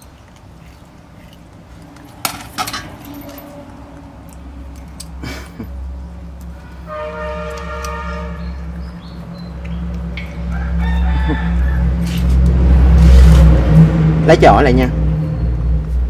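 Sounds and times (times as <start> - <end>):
steel pot and chain clinking: 2.0 - 4.0, 9.5 - 10.6
rooster crowing: 10.2 - 12.3.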